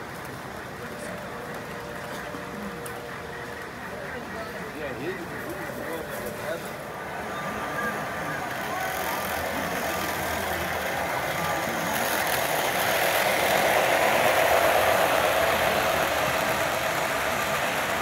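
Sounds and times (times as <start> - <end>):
model train rumbling on track: 0.0 - 18.0.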